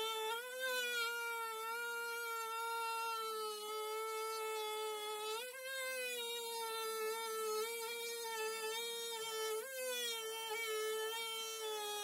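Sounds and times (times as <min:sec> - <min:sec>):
oscillating multi-tool cutting: 0:00.0 - 0:12.0.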